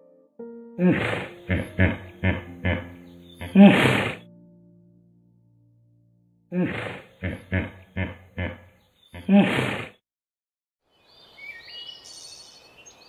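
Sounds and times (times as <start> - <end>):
hippopotamus honking: 0.8 - 4.2.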